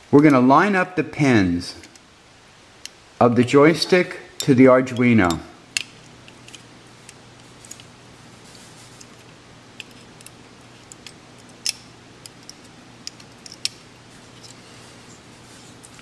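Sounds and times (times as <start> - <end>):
faint steady hum: 0.0 - 16.0
circuit board pins clicking: 9.8 - 13.8.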